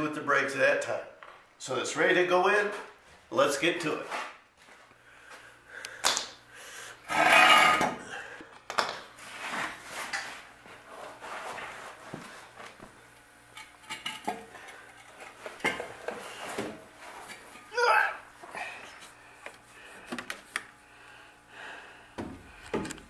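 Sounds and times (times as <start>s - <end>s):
metal parts clanking and scraping: 7.1s - 7.9s.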